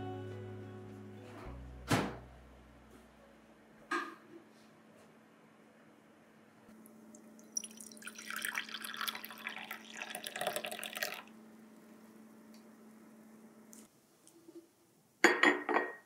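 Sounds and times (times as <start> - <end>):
coffee pouring into cup: 7.1 - 11.3.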